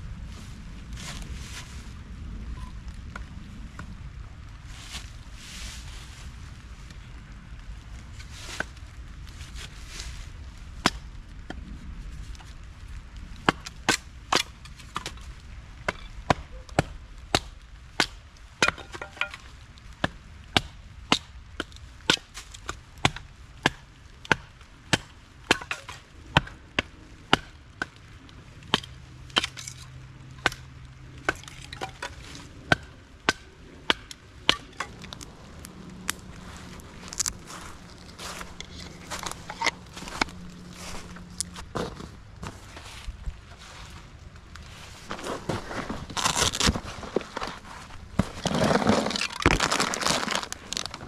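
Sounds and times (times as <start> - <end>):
axe chopping wood: 15.9 - 19.4, 27.3 - 28.0, 31.2 - 35.0.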